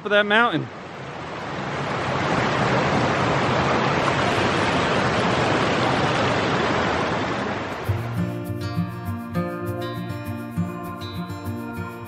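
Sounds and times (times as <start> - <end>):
rushing stream water: 0.7 - 8.7.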